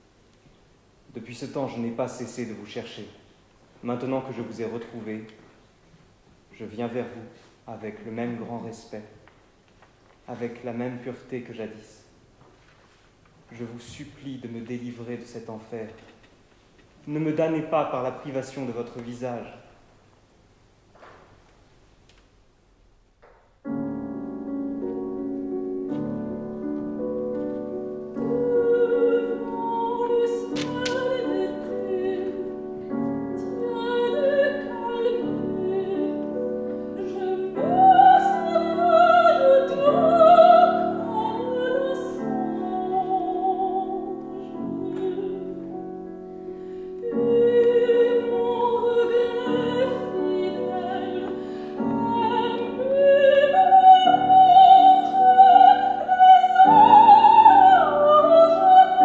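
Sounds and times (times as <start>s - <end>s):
soprano singing with vibrato: 24.0s - 59.0s.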